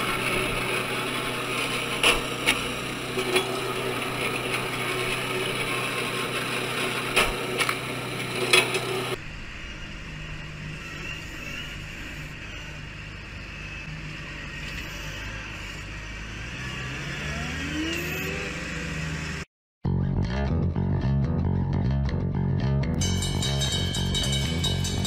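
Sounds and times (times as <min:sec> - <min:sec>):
tractor engine running: 0:00.0 - 0:10.8, 0:23.0 - 0:25.0
log splitter humming: 0:00.0 - 0:19.4.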